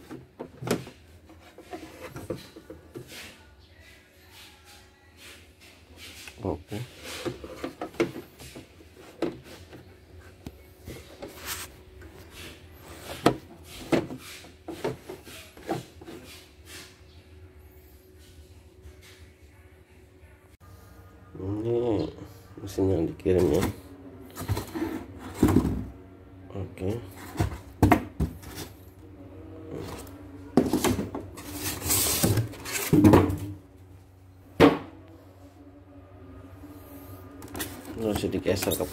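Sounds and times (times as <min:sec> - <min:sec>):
packing scraped in cardboard box: 0:29.7 - 0:33.4.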